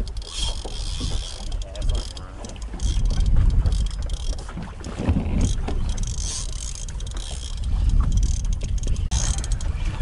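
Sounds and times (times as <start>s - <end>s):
fishing reel clicking: 0.0s - 4.4s, 5.4s - 9.7s
wind rumbling on microphone: 0.0s - 10.0s.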